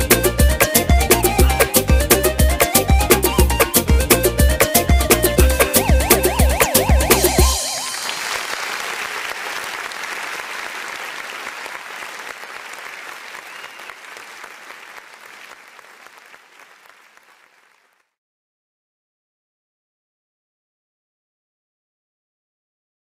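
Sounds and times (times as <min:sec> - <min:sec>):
crowd applauding: 0:06.4 - 0:18.1.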